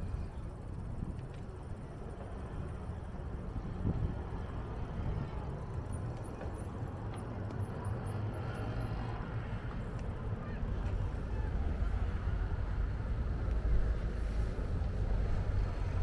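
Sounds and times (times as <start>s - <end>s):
wind rumble on microphone: 0.0s - 6.8s
road traffic noise: 0.0s - 16.0s.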